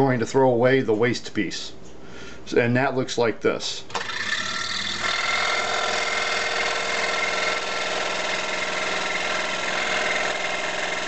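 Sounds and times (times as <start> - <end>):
scroll saw cutting wood: 3.9 - 11.0.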